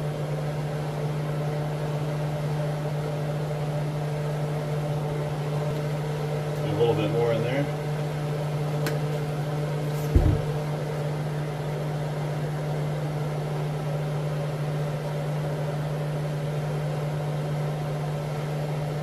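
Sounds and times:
exhaust fan humming: 0:00.0 - 0:19.0
thump: 0:10.0 - 0:10.6.

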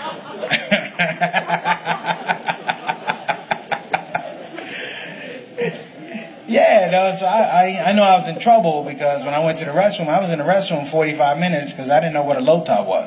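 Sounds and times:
audience laughing: 0:00.0 - 0:06.5.

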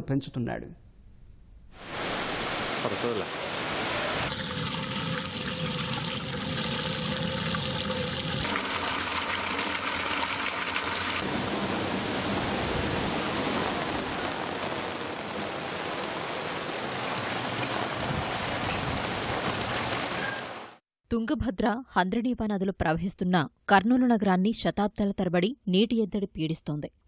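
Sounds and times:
rainwater pouring into drum: 0:04.2 - 0:11.9, 0:13.2 - 0:20.6.

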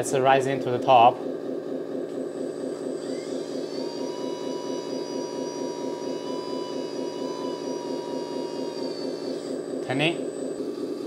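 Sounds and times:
hydraulic pump pulsing hum: 0:00.0 - 0:11.0
motor whine: 0:00.0 - 0:11.0.

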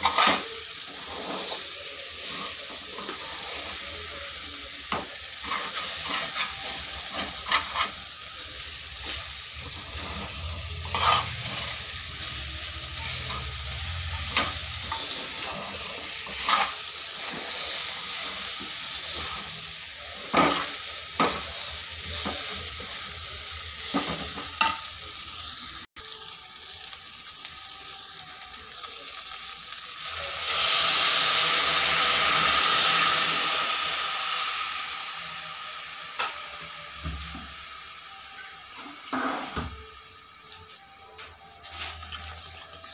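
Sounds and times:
water hissing in hot pan: 0:00.0 - 0:40.2, 0:41.6 - 0:42.9
light sizzle of frying: 0:00.0 - 0:42.9.

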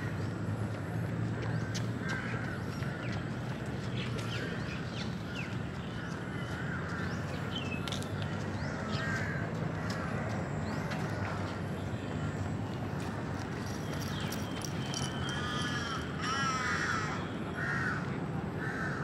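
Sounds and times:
distant city traffic rumble: 0:00.0 - 0:19.0
birds chirping and whistling: 0:13.6 - 0:16.0.

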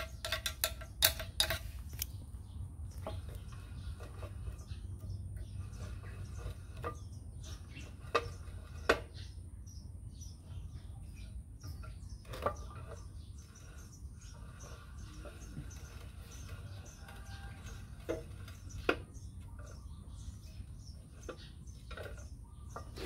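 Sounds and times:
vise handle clinking: 0:00.0 - 0:02.2.

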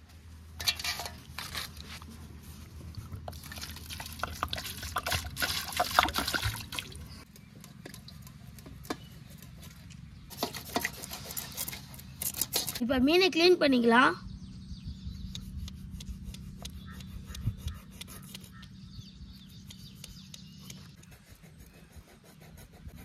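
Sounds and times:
water pouring and splashing: 0:03.0 - 0:07.1.

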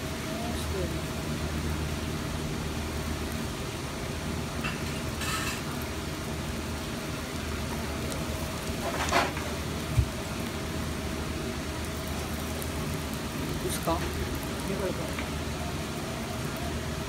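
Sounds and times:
gas burners hissing: 0:00.0 - 0:17.0.

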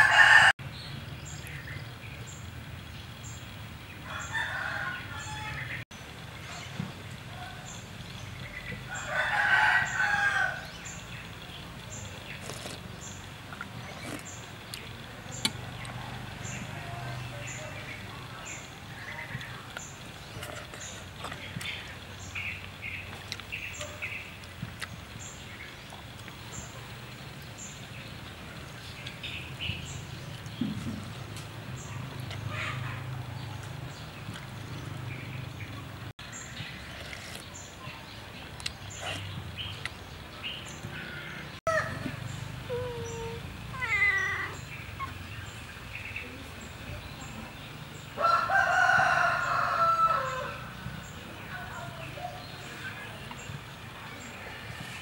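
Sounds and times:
rooster crowing: 0:00.0 - 0:00.6, 0:04.0 - 0:05.8, 0:08.9 - 0:10.7, 0:48.2 - 0:50.7
birds chirping: 0:00.0 - 0:55.0.

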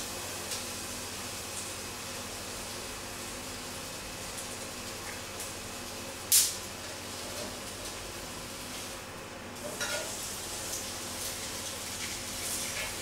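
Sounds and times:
chicken sizzling on grill pan: 0:09.6 - 0:13.0.

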